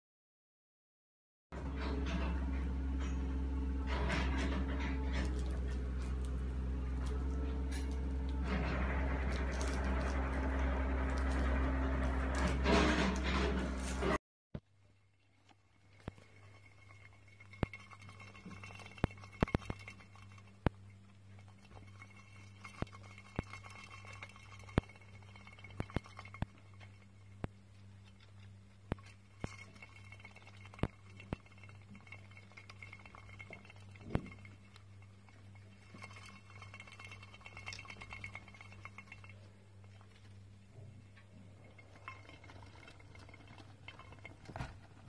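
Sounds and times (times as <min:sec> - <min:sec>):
hamster wheel whirring: 0:01.6 - 0:14.2, 0:14.8 - 0:45.0
steady low hum: 0:01.6 - 0:45.0.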